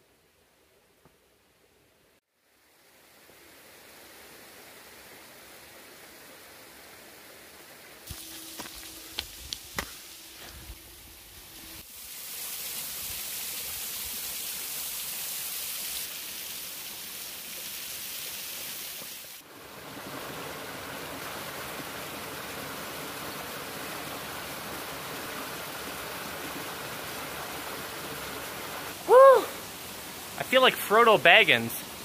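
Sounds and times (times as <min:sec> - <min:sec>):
water rushing down rocky cascade: 0:11.9 - 0:32.0.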